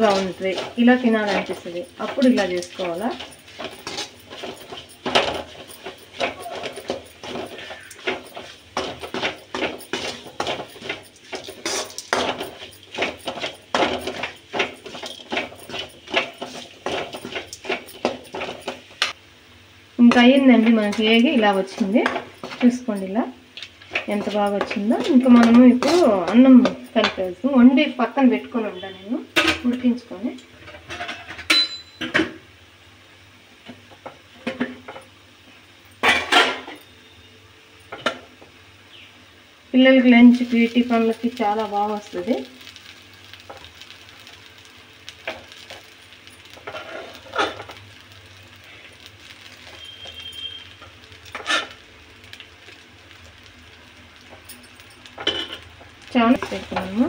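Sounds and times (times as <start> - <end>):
spoon scraping a metal pan: 0.0 - 19.2, 23.8 - 27.4, 46.5 - 47.8, 49.3 - 51.8.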